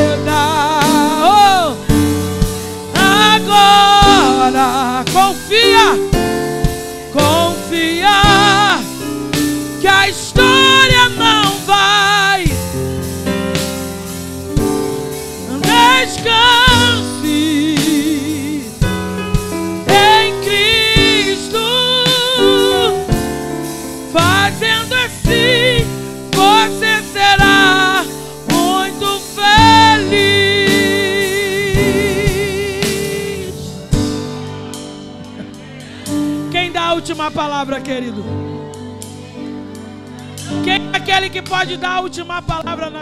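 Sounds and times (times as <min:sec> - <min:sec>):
woman singing with vibrato: 0:00.0 - 0:01.9, 0:02.9 - 0:06.5, 0:07.1 - 0:09.1, 0:09.8 - 0:12.7, 0:15.4 - 0:18.8, 0:19.9 - 0:23.4, 0:24.1 - 0:33.8
drums: 0:00.0 - 0:42.9
electric guitar: 0:00.0 - 0:43.0
keyboard: 0:00.0 - 0:43.0.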